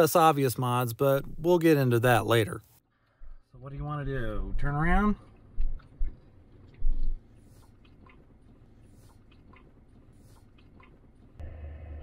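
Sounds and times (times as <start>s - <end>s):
faint crackles and ticks: 2.6s - 11.4s
low road noise inside car: 3.6s - 12.0s.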